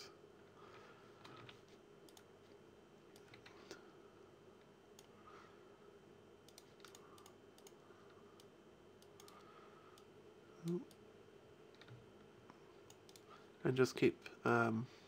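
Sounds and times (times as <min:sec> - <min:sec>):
person humming: 0:10.6 - 0:10.9.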